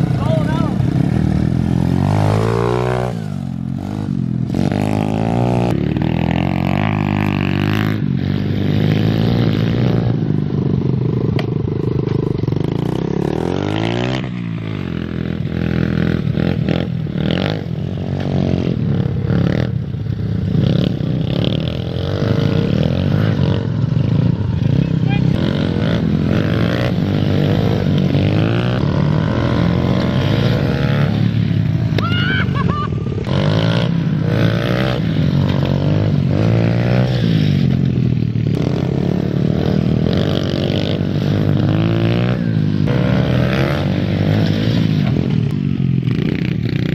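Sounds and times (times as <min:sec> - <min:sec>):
dirt bike engine revving: 0:00.0 - 0:46.9.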